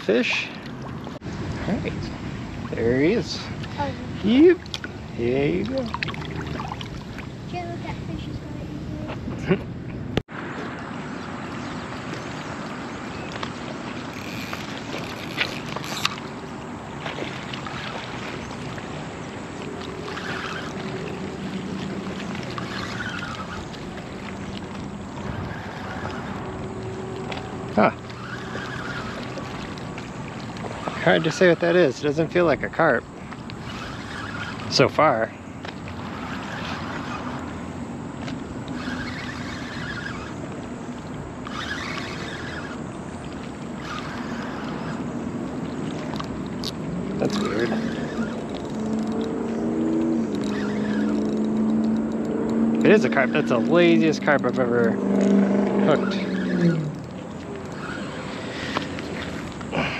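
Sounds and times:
river water rippling: 0.0 - 59.9
steady wind: 0.0 - 59.9
sharp clicks: 46.1 - 55.4.

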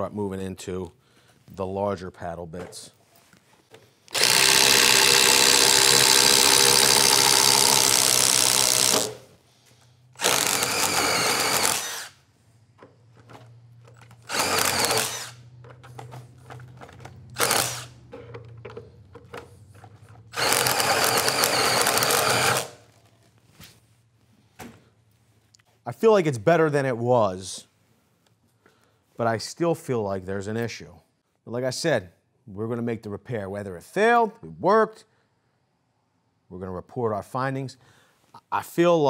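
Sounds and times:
impact driver boring into wood: 4.1 - 9.3, 10.2 - 12.2, 14.0 - 15.5, 17.3 - 18.0, 20.3 - 22.8.

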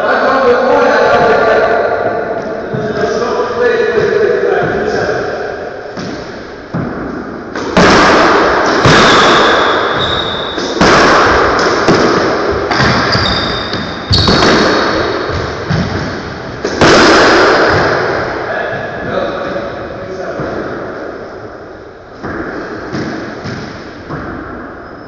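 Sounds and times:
squash ball hitting walls: 3.9 - 21.2, 22.1 - 24.8
shoe squeaks on court: 9.0 - 10.6, 12.7 - 14.6.

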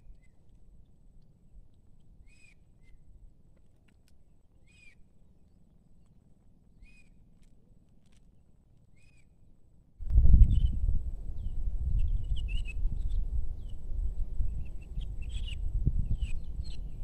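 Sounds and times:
low background rumble: 9.5 - 17.0.

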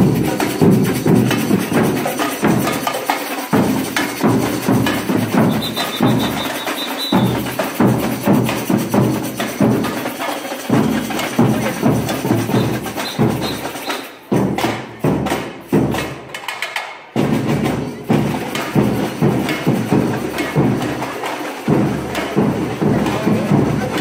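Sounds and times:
marching drum band: 0.0 - 24.0.

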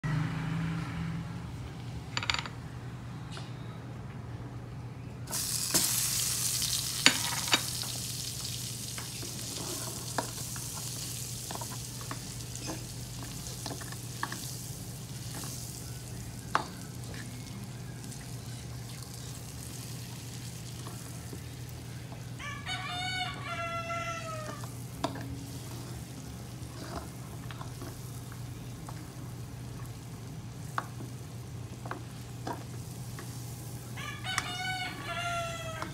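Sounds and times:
butter sizzling in a wok: 5.3 - 35.9
spatula scraping a pan: 9.3 - 14.5, 24.4 - 29.1
rooster crowing: 22.2 - 24.8, 34.0 - 35.9.

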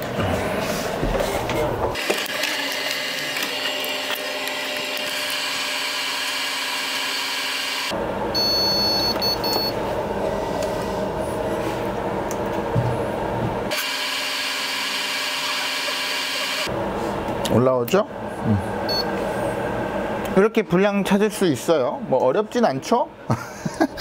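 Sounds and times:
whir of cooling fans: 7.4 - 13.7, 14.8 - 24.0
high electronic beeps: 18.9 - 19.1.

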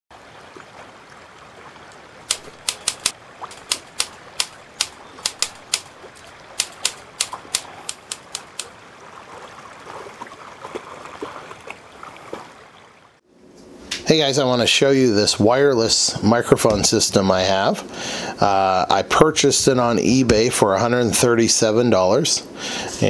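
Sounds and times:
typewriter keystroke clacks: 2.3 - 8.7.

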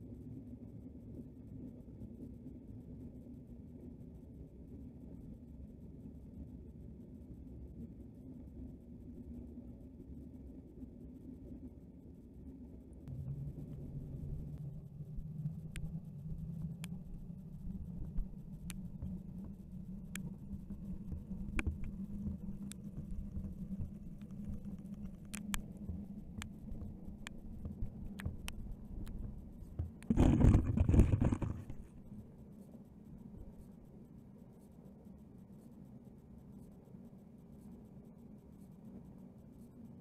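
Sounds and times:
underwater low rumble: 12.7 - 32.3.

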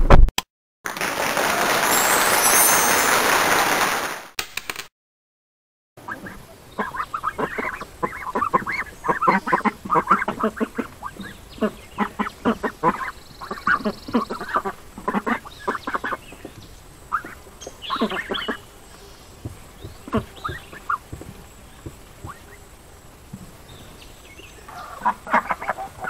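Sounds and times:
ducks quacking: 6.0 - 16.3, 17.1 - 18.7, 24.7 - 26.0.

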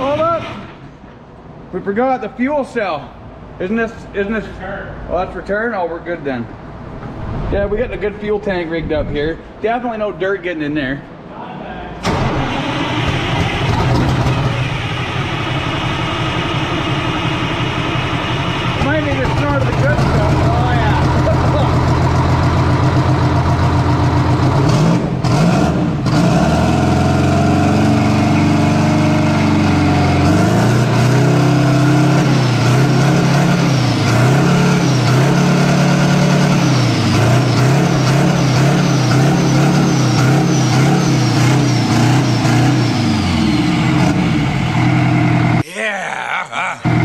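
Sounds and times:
diesel engine idling and revving: 0.0 - 1.7, 12.0 - 45.6, 46.5 - 47.0.

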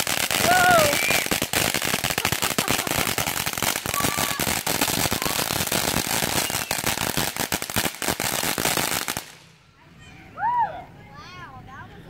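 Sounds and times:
firework fountain hissing and crackling: 0.0 - 9.6.

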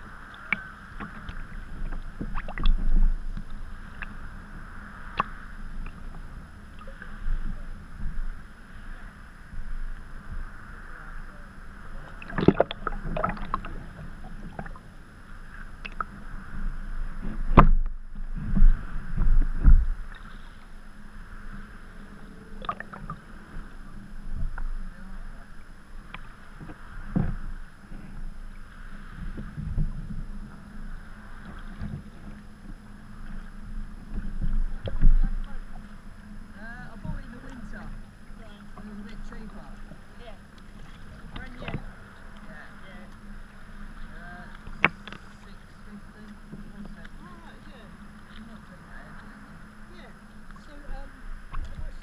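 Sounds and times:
paddle blades splashing: 0.0 - 52.0
water slapping against hull: 0.0 - 52.0.

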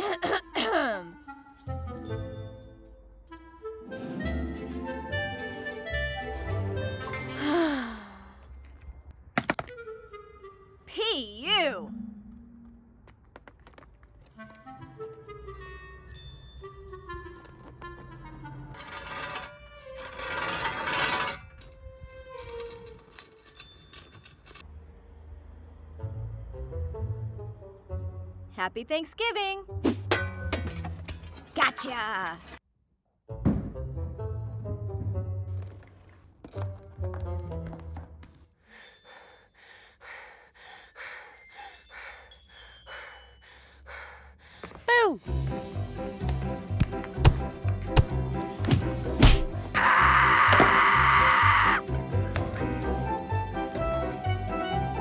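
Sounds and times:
soft woodwind music: 1.1 - 7.4, 9.7 - 12.6, 14.2 - 18.8, 51.8 - 55.0
metal shovel scraping paving stones: 17.4 - 24.6, 30.0 - 32.6
heavy rhythmic breathing: 38.5 - 44.9.

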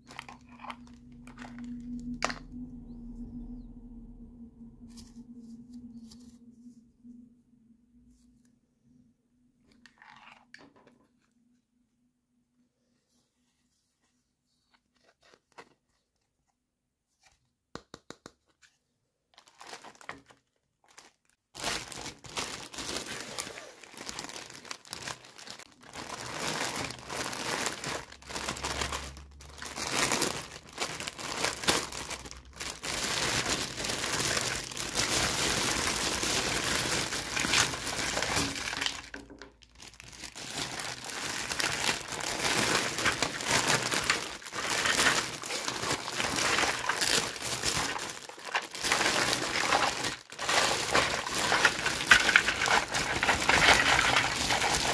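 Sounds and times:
plastic bag crinkling: 0.0 - 2.5, 19.4 - 54.9.

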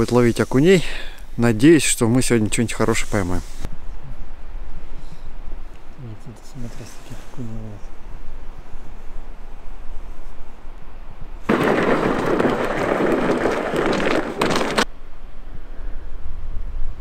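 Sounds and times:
sled scraping over snowy ice: 11.5 - 14.9.

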